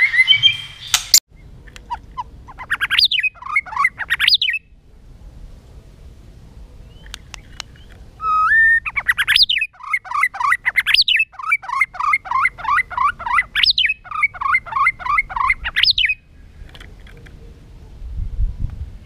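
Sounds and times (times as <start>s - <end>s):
bird singing whistled phrases: 0.0s - 1.0s, 2.7s - 4.6s, 6.9s - 16.2s.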